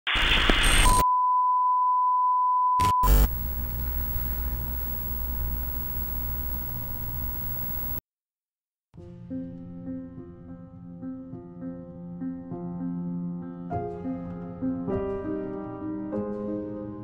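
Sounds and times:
crackling glitch: 0.0s - 1.0s, 2.8s - 8.0s
static hiss: 0.1s - 1.0s, 2.8s - 8.0s
faint high-pitched whine: 3.0s - 8.0s
low steady hum: 3.0s - 8.0s.

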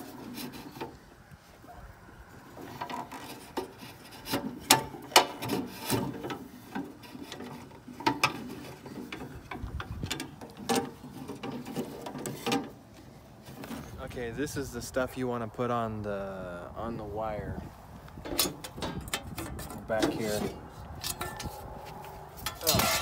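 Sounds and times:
metal parts scraping: 22.4s - 23.0s.

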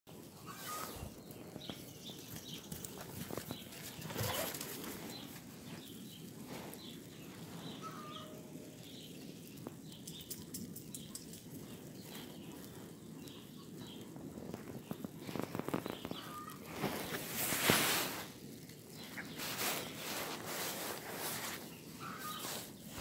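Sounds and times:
dogs' paws scuffling on grass: 0.1s - 23.0s
small birds chirping: 0.1s - 23.0s.

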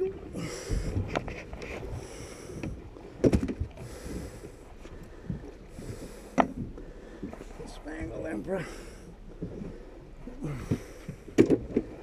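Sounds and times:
wind and water rumble: 0.0s - 12.0s
knocks on boat: 2.6s - 3.7s, 11.3s - 11.9s.

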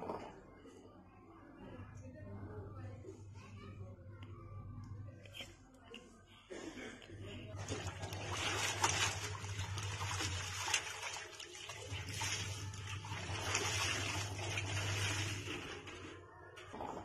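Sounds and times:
water splashing and sloshing: 7.5s - 17.0s.

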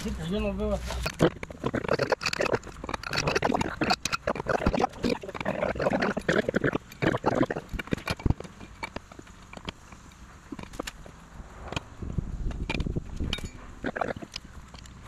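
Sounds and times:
wrench metal clicks and scrapes: 1.0s - 11.0s.

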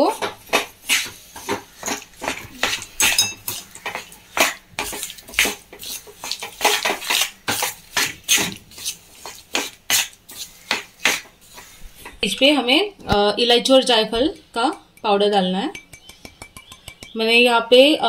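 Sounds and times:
metallic ring: 3.0s - 3.4s.

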